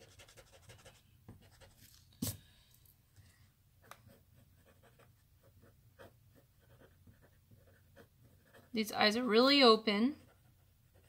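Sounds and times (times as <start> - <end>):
pencil strokes on paper: 0.0 - 2.5, 4.0 - 9.2.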